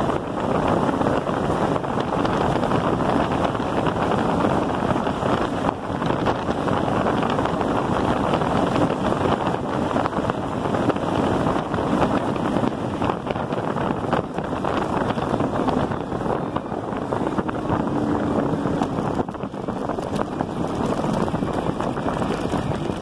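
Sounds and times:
wind rush on microphone: 0:00.0 - 0:23.0
tyres crackling over gravel: 0:18.6 - 0:23.0.

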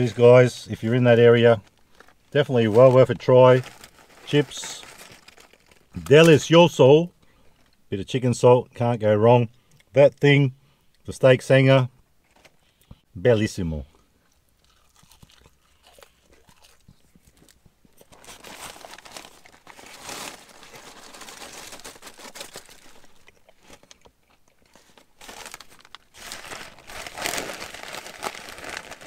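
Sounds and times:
paper wrapping crinkling: 0:00.0 - 0:06.5, 0:16.6 - 0:29.0.

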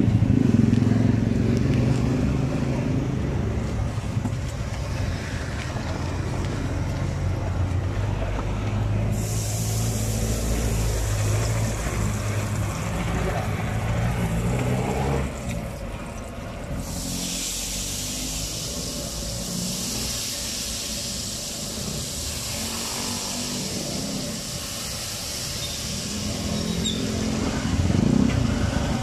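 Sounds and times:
low engine rumble: 0:00.0 - 0:29.0
hot oil sizzling in a wok: 0:16.8 - 0:27.2.

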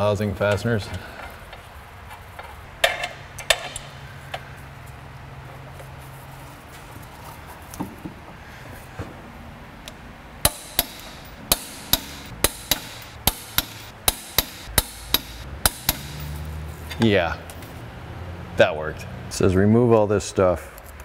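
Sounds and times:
sharp metallic clicks of hand tools: 0:02.8 - 0:04.4, 0:10.4 - 0:17.6.

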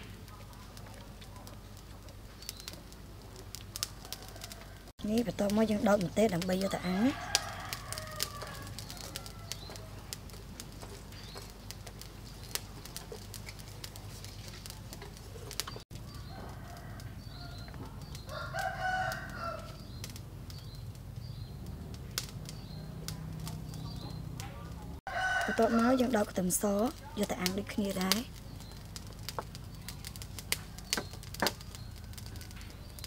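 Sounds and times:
rooster crowing: 0:03.8 - 0:04.9, 0:06.6 - 0:10.1, 0:16.0 - 0:19.9, 0:25.1 - 0:26.2.

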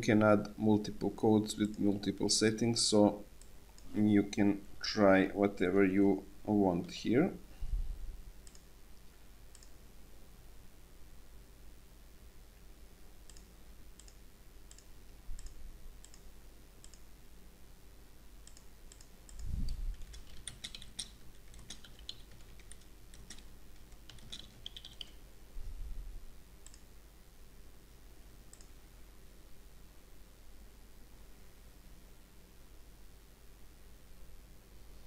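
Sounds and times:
keyboard typing: 0:18.4 - 0:25.2.

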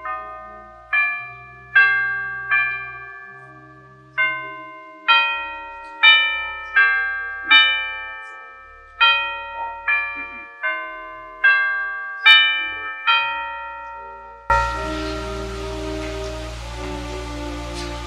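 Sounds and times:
chime notes: 0:13.8 - 0:18.0
soft low organ notes: 0:14.5 - 0:18.0.

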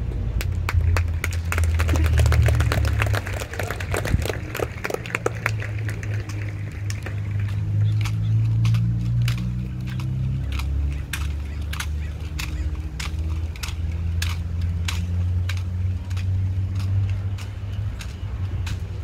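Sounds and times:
rifle slaps and clicks: 0:08.0 - 0:18.8.

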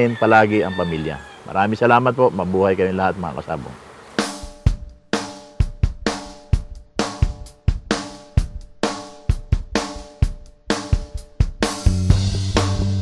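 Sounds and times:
drum kit beat: 0:04.2 - 0:13.0.

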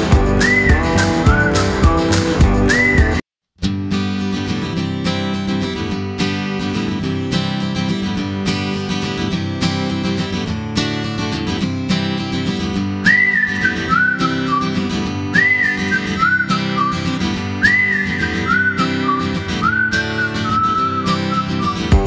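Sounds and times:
strummed acoustic guitar: 0:00.0 - 0:22.0
whistled tune: 0:00.1 - 0:03.2, 0:13.0 - 0:22.0.

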